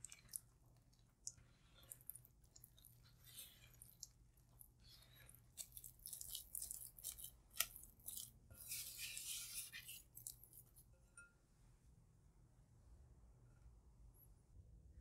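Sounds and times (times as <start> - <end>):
spatula scraping a glass bowl: 3.0 - 4.1, 4.8 - 11.3.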